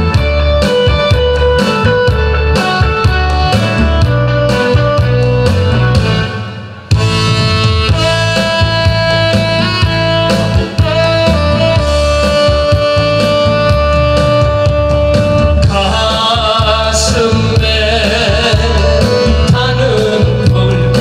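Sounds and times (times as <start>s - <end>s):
instrumental accompaniment: 0.0s - 21.0s
man singing with vibrato: 15.5s - 21.0s.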